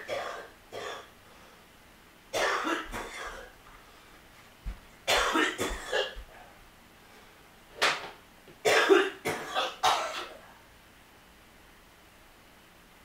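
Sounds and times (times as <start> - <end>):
person coughing: 0.0 - 1.1, 2.4 - 3.5, 5.1 - 6.2, 8.6 - 10.4.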